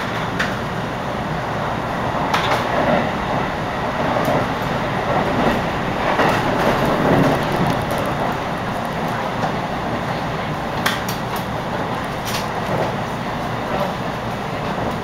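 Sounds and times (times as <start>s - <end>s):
train wheels rumbling on rails: 0.0s - 15.0s
wheels clicking over rail joints: 4.0s - 10.1s.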